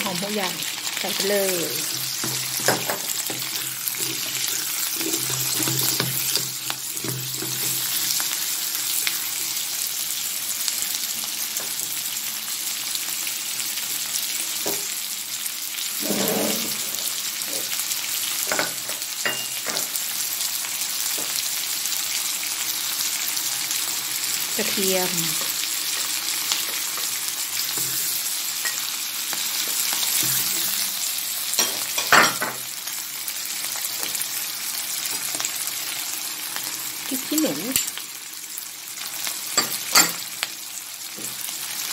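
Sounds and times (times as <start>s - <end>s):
food sizzling in hot oil: 0.0s - 41.9s
utensil scraping and knocking wok: 1.1s - 8.2s, 16.0s - 17.2s, 25.0s - 28.9s.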